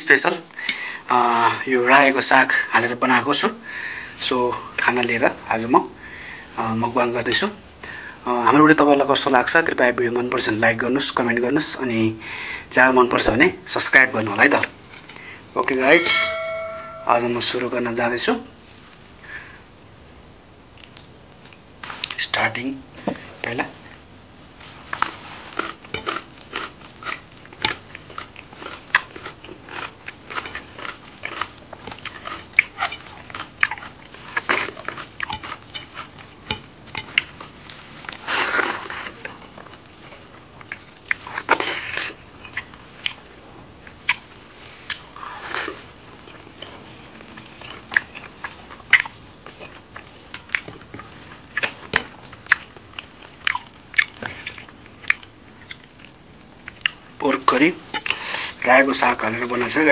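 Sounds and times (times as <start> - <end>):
chewing and lip smacking: 20.7 - 22.2, 24.9 - 59.8.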